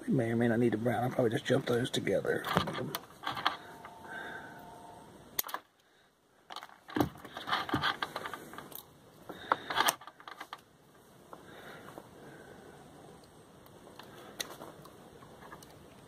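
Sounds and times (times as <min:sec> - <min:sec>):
hands rustling and scraping wires: 0:01.3 - 0:04.0, 0:06.5 - 0:12.2, 0:13.1 - 0:16.0.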